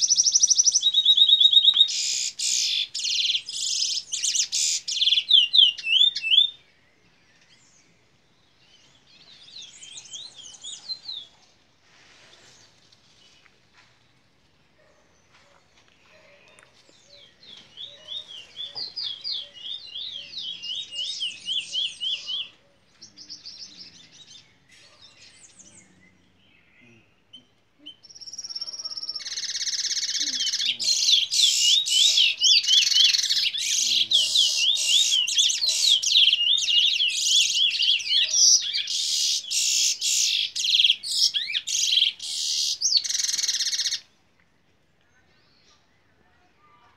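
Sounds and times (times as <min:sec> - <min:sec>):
bird singing high trills: 0:27.9 - 0:44.0.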